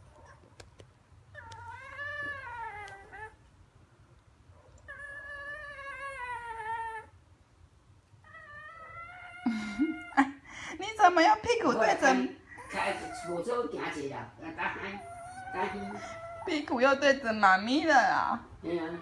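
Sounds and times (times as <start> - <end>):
small dog whining: 1.3 - 3.5, 4.8 - 7.2, 8.2 - 10.3, 12.5 - 14.0, 14.6 - 16.9.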